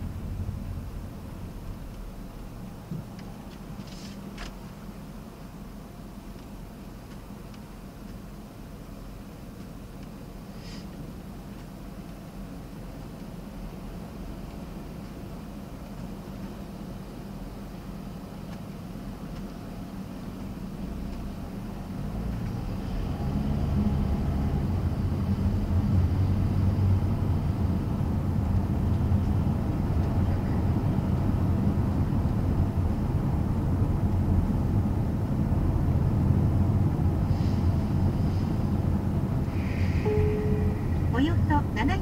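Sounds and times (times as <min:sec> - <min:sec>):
car engine and road noise: 0:00.0 - 0:42.0.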